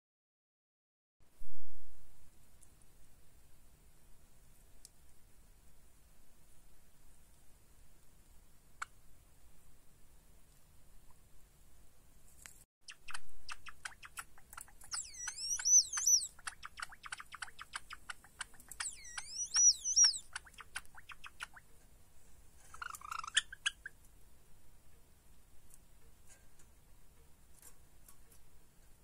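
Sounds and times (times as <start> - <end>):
sparrow song: 12.9 - 21.7, 22.7 - 24.0.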